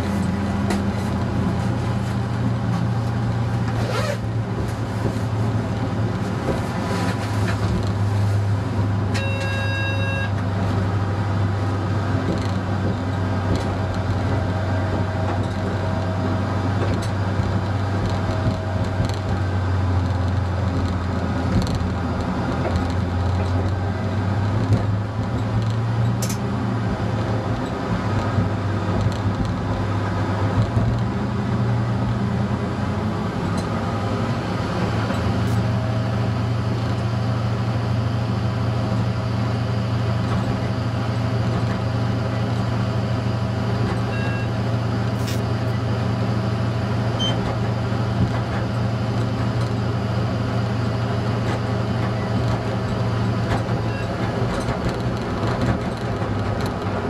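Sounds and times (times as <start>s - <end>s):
diesel engine drone: 0.0s - 57.0s
train running noise: 0.0s - 57.0s.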